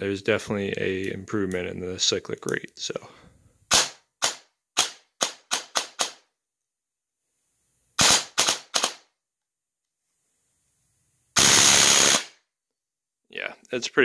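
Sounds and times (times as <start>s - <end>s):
airsoft gun full-auto burst: 3.7s - 6.2s, 8.0s - 9.1s, 11.4s - 12.4s
airsoft gun single shots: 3.7s - 6.2s, 8.0s - 9.1s, 11.4s - 12.4s.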